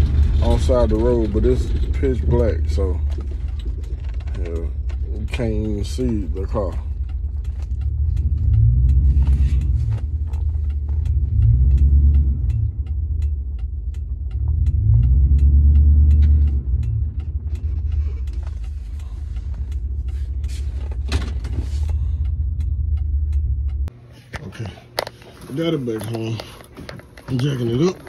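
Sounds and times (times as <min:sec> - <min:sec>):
fast ticking: 0:00.0 - 0:20.8
truck rumble: 0:00.0 - 0:25.0.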